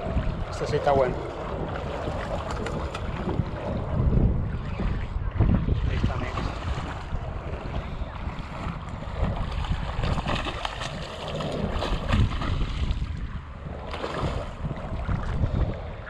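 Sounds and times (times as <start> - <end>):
lapping shallow water: 0.0 - 16.0
wind buffeting microphone: 0.0 - 16.0.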